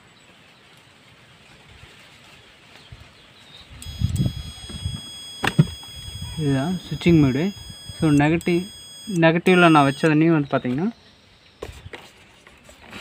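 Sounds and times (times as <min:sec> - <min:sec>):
sharp clicks: 0:03.8 - 0:06.2, 0:06.9 - 0:10.8
high-pitched electronic beep: 0:03.8 - 0:11.6.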